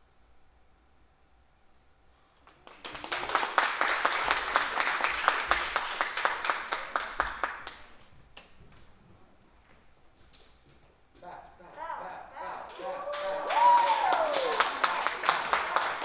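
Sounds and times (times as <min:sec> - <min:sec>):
audience applause: 0:02.5 - 0:07.9, 0:12.6 - 0:16.0.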